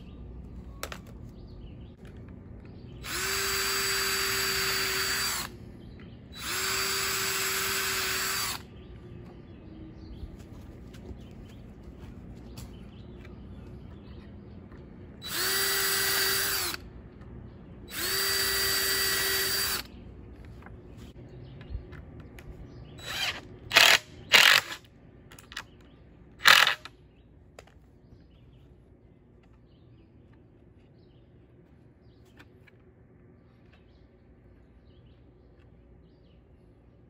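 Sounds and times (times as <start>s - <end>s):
cordless drill boring into wood: 3.0s - 5.5s, 6.4s - 8.6s, 15.2s - 16.8s, 17.9s - 19.9s, 23.0s - 24.8s, 26.4s - 26.8s
impact driver driving screws: 26.4s - 26.9s.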